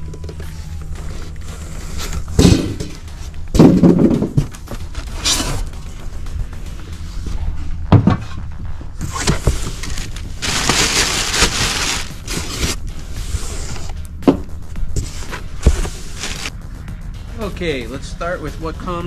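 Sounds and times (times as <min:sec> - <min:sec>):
knocks and thumps: 0:02.2 - 0:05.1, 0:07.8 - 0:12.5, 0:14.2 - 0:16.0
packaging rustling: 0:09.2 - 0:12.8, 0:15.8 - 0:16.5.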